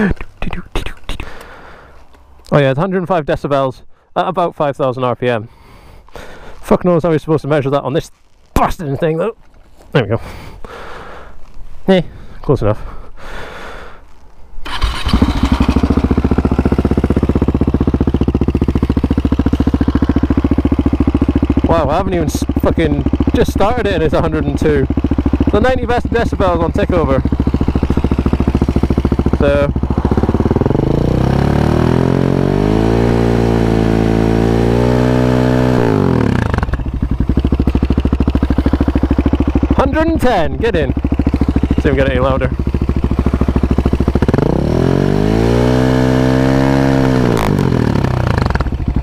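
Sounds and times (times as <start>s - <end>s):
motorcycle engine starting and idling: 14.6s - 49.0s.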